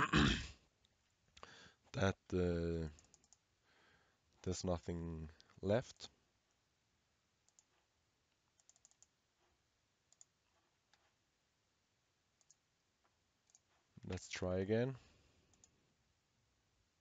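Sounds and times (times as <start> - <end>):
computer mouse and keyboard clicks: 3.0 - 3.4, 8.5 - 9.2, 12.4 - 12.6, 13.4 - 14.3.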